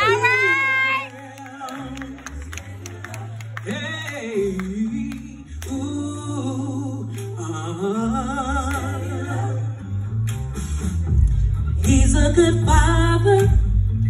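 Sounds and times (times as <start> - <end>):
amplified backing music with bass: 0.0 - 14.0
woman singing into a microphone: 11.8 - 13.8.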